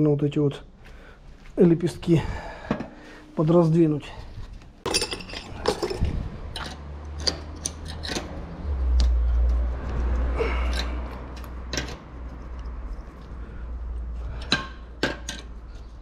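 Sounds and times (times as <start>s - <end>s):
light metal clicks and scrapes: 4.8s - 13.4s
low rumble: 5.5s - 7.1s.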